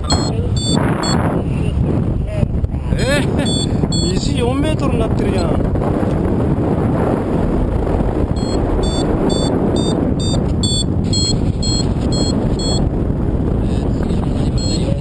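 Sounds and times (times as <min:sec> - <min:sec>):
variometer short beeps: 0:00.0 - 0:01.2, 0:03.4 - 0:04.2, 0:08.4 - 0:12.9, 0:14.5 - 0:15.0
wind buffeting microphone: 0:00.0 - 0:15.0.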